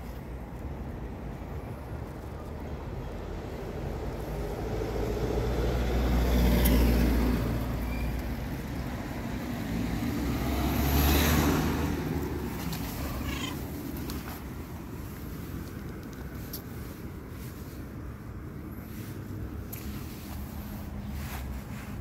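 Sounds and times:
cars passing: 0:00.2 - 0:22.0
cat meowing: 0:12.9 - 0:13.7.

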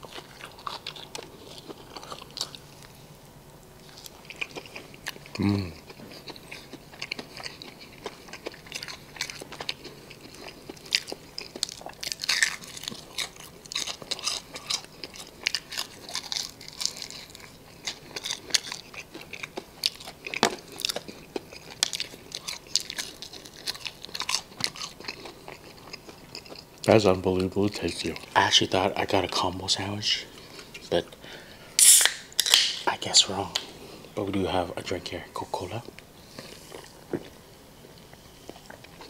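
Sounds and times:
person chewing crispy chicken: 0:00.0 - 0:03.1, 0:03.8 - 0:29.4, 0:36.2 - 0:39.0.

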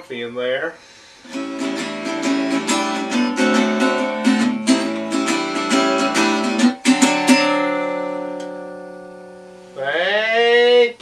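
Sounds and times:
guitar strumming blues chords: 0:01.2 - 0:09.8.

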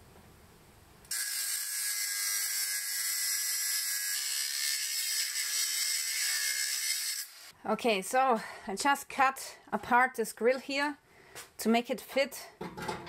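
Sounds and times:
angle grinder cutting steel: 0:01.1 - 0:07.5.

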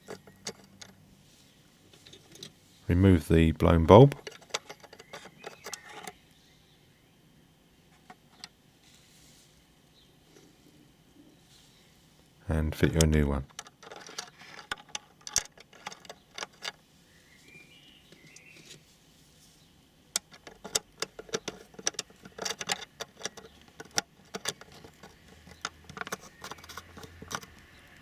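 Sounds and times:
tools clicking on plastic: 0:04.1 - 0:06.2, 0:13.5 - 0:16.8, 0:20.2 - 0:27.8.

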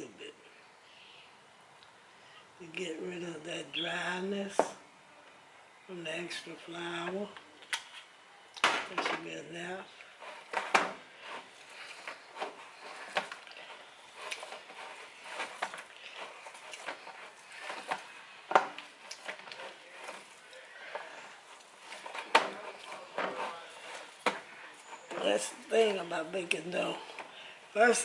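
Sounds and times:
hands kneading dough: 0:08.6 - 0:28.0.

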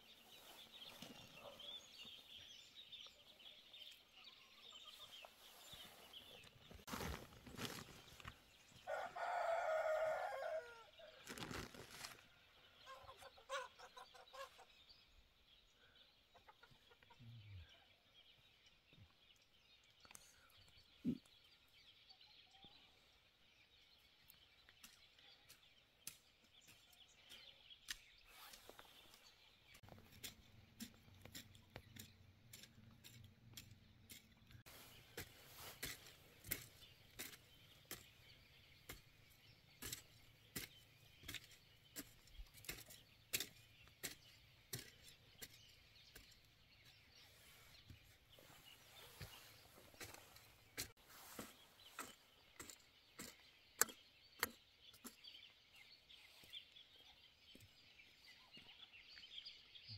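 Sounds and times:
rooster crowing: 0:08.8 - 0:10.9.

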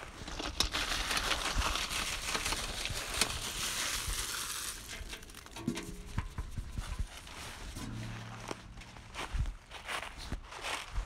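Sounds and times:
dry leaves rustling and crunching: 0:00.0 - 0:06.1.

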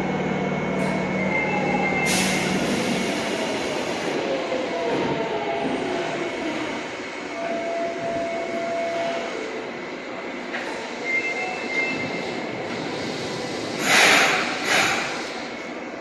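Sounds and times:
subway train rumbling: 0:00.0 - 0:16.0
hissing air bursts: 0:12.9 - 0:15.5.

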